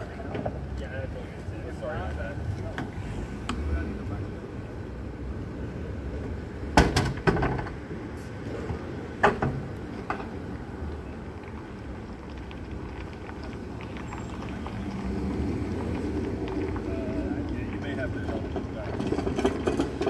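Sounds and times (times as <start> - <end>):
low rumble of vehicles: 0.0 - 20.0
loud clunk: 6.8 - 7.7
equipment knocking and clattering: 18.2 - 20.0.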